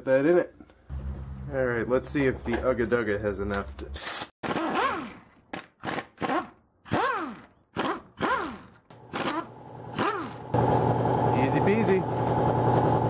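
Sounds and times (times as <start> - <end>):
air impact wrench bursts: 4.0 - 10.6.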